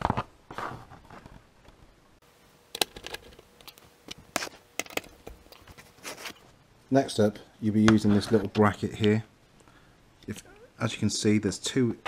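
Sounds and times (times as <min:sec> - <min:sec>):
quiet handling noise: 0:02.7 - 0:06.6, 0:07.3 - 0:10.6.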